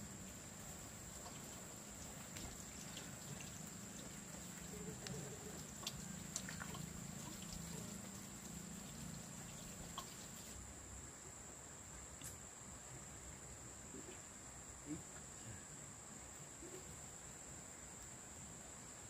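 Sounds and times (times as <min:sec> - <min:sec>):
crickets droning: 0:00.0 - 0:19.0
plants rustling and clicking: 0:00.8 - 0:10.6.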